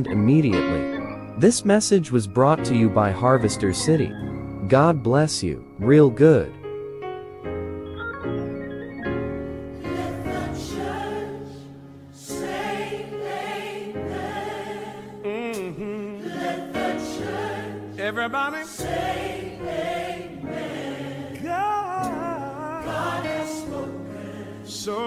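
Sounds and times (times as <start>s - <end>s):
gospel choir singing: 8.9s - 25.0s.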